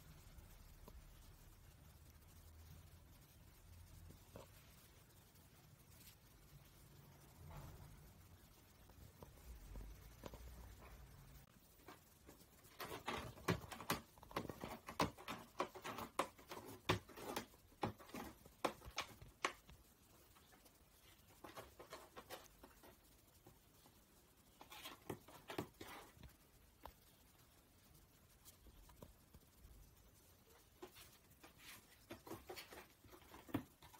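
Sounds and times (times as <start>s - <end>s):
cat clawing cardboard box: 12.7s - 19.6s.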